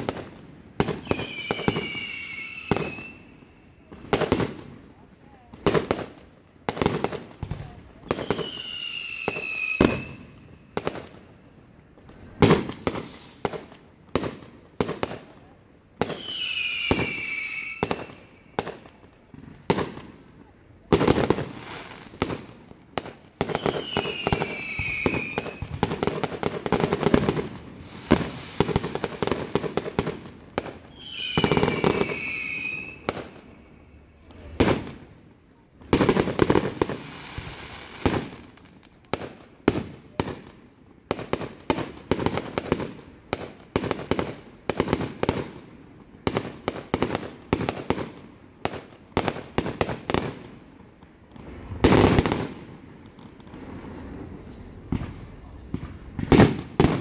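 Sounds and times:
firework bangs and crackle: 0:00.0 - 0:57.0
high falling firework whistle: 0:01.0 - 0:03.9, 0:08.2 - 0:10.5, 0:16.1 - 0:18.6, 0:23.5 - 0:25.8, 0:30.9 - 0:33.2.

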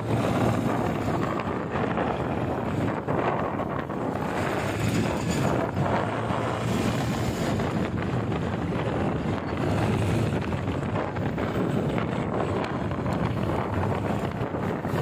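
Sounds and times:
motorcycle engine: 0:00.0 - 0:15.0
road noise: 0:00.0 - 0:15.0
wind rushing over microphone: 0:00.0 - 0:15.0.

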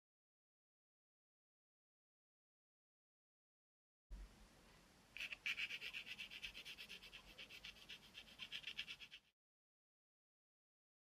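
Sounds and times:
pencil scratching on paper: 0:05.2 - 0:09.3.

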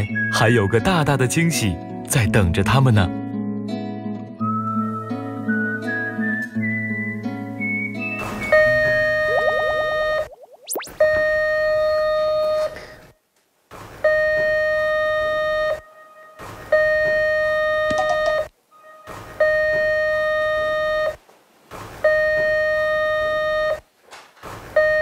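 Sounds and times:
door intercom ringing: 0:17.0 - 0:19.0.

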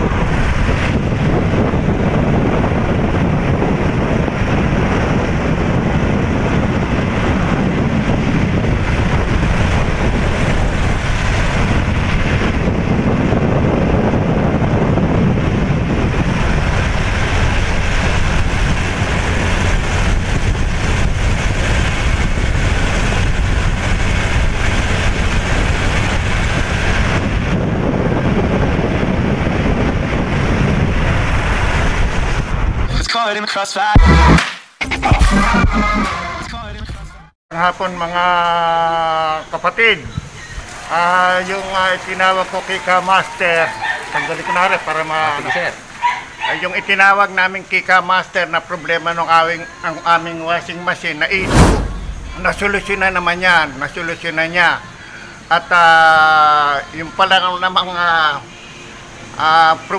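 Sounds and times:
vehicle road noise: 0:00.0 - 0:32.9, 0:51.1 - 0:55.5
wind buffeting microphone: 0:00.0 - 0:32.9, 0:51.3 - 0:54.1.

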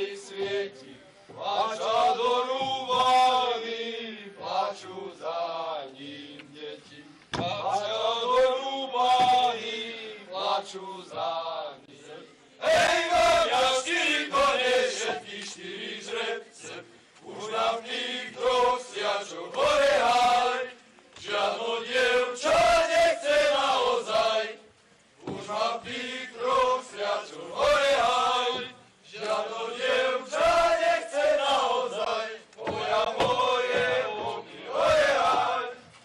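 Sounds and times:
men singing folk song unaccompanied: 0:00.0 - 0:36.0.

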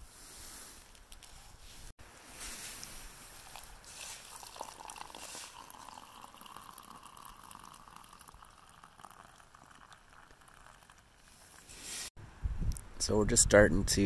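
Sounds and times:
hot water pouring into mug: 0:03.4 - 0:11.7.

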